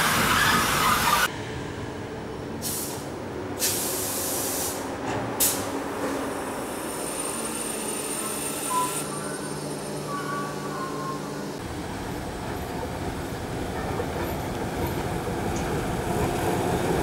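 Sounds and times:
train coaches rolling past: 0.0 - 17.0
air brakes hissing: 2.6 - 9.8.

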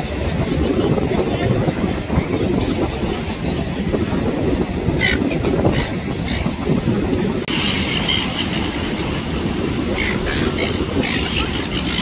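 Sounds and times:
gulls calling: 7.5 - 12.0.

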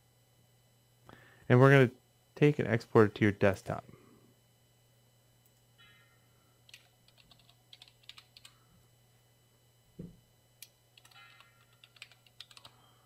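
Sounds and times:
keyboard typing: 6.7 - 8.6, 11.0 - 12.8.

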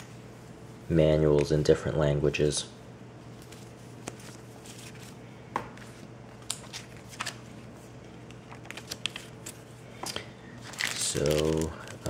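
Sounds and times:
faint steady hum: 0.0 - 12.0
paper rustling and flicking: 3.3 - 5.2, 5.8 - 7.7, 8.4 - 9.6.

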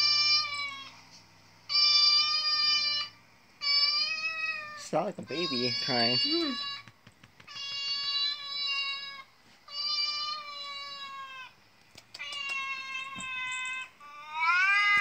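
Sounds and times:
recorded cat meows from speaker: 14.4 - 15.0.

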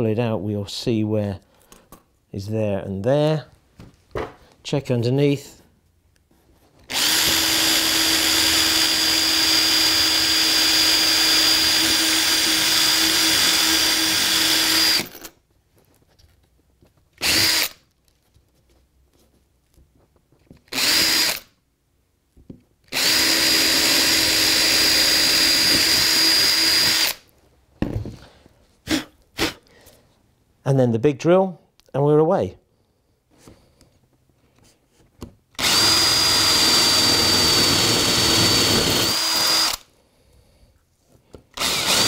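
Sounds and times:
cordless drill whining: 6.8 - 15.3, 17.2 - 17.8, 20.6 - 21.5, 22.9 - 27.3, 35.5 - 39.9, 41.5 - 42.0.

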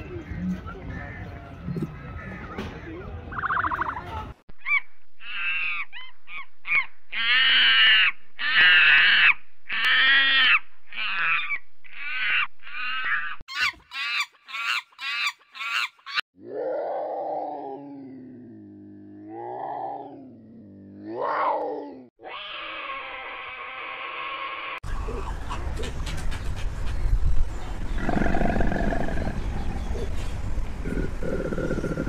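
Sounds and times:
shrill animal calls: 4.6 - 16.2
animal growl: 16.4 - 24.0, 27.9 - 30.2, 30.8 - 32.0.

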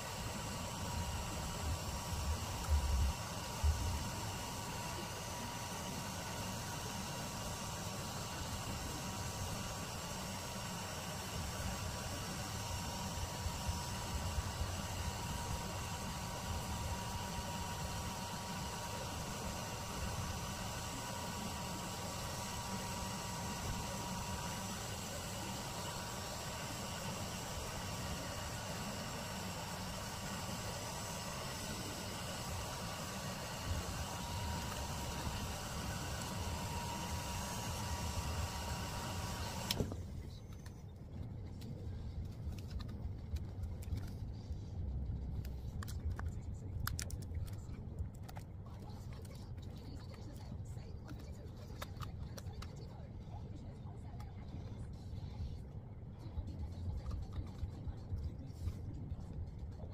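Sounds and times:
heat gun whirring hum: 0.0 - 40.6.

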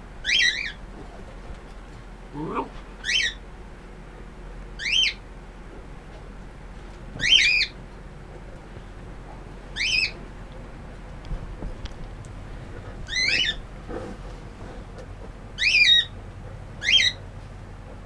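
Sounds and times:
puppy squealing: 3.0 - 3.4, 13.1 - 13.6, 15.6 - 16.1.

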